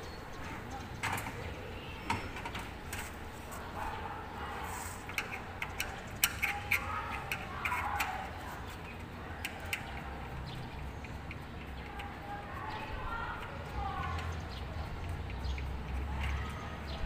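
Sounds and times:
tool tapping aluminium frames: 5.0s - 8.3s.

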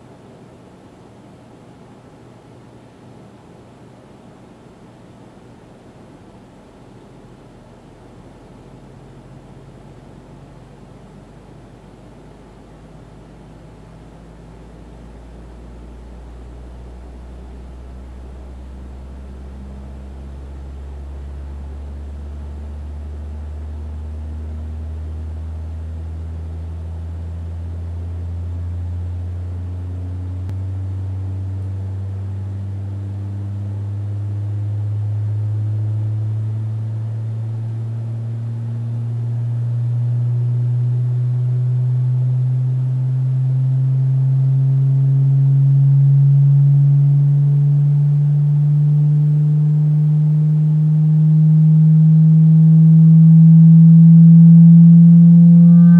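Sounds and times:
rising low sine tone: 13.0s - 55.9s.

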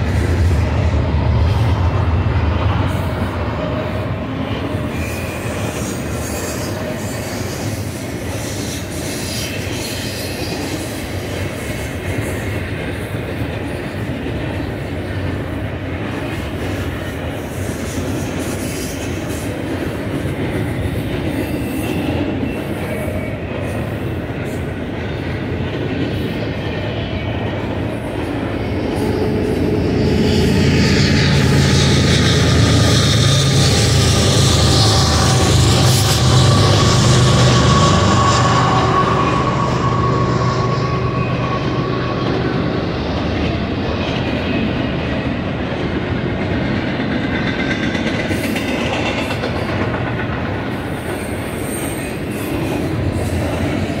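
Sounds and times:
train wheels rumbling on rail: 0.0s - 54.0s
faint wheel squeal: 28.8s - 43.7s.

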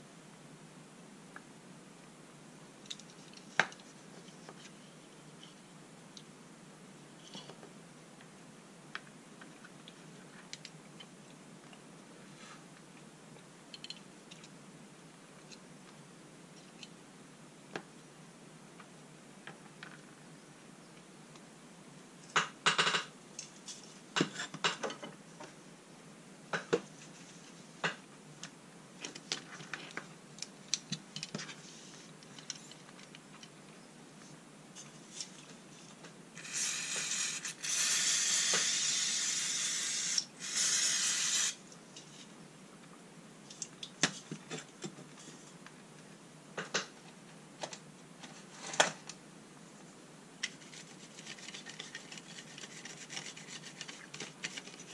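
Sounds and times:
aerosol spray hissing: 36.4s - 41.6s.

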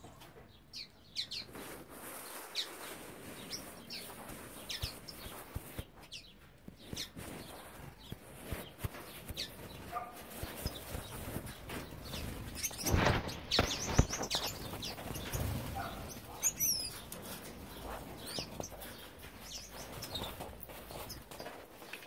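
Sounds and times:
finches chirping: 0.5s - 1.5s, 2.2s - 21.6s
wings flapping: 6.7s - 22.0s.

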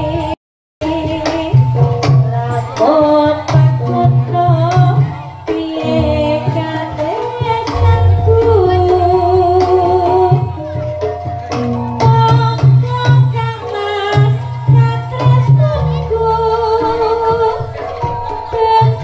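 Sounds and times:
sliding sung melody: 7.6s - 10.9s
deep low note: 7.7s - 10.8s.

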